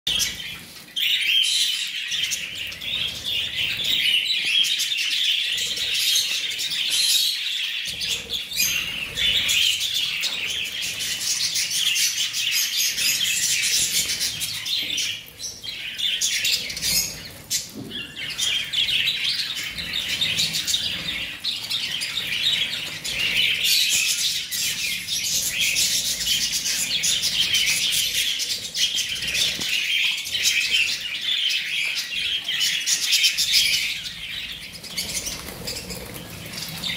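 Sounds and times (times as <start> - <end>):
budgerigars chattering: 0.1 - 36.9.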